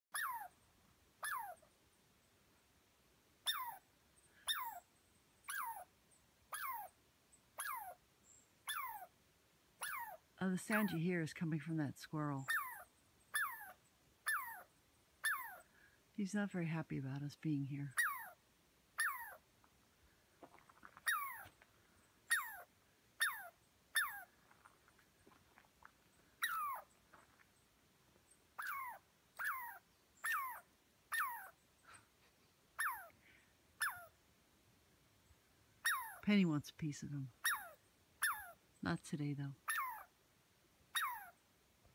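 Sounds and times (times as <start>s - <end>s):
squirrel alarm call: 0.1s - 0.6s, 1.2s - 1.7s, 3.4s - 5.9s, 6.5s - 9.2s, 9.8s - 19.4s, 21.0s - 21.5s, 22.3s - 24.3s, 26.4s - 26.9s, 28.5s - 31.6s, 32.8s - 33.2s, 33.8s - 34.2s, 35.8s - 40.2s, 40.9s - 41.4s.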